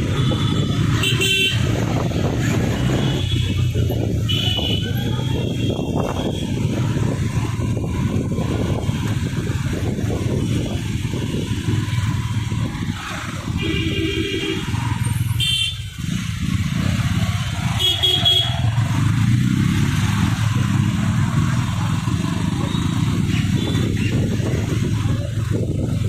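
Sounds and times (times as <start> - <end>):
motorcycle engine rumble: 0.0 - 26.0
vehicle horn honks: 0.2 - 1.6, 17.8 - 18.6.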